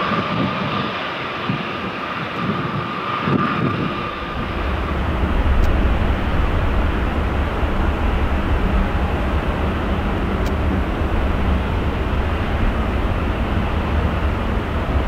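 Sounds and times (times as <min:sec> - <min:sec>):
jet engines at taxi power: 0:00.0 - 0:15.0
deep low rumble: 0:03.8 - 0:15.0.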